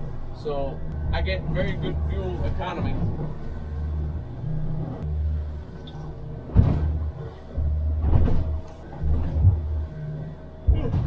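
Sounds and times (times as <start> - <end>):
boat engine drone: 0.0 - 11.0
sharp knocks: 6.5 - 7.1.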